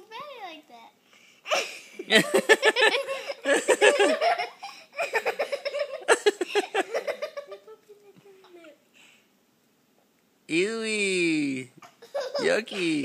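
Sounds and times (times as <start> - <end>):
child giggling: 1.5 - 8.8, 11.8 - 13.0.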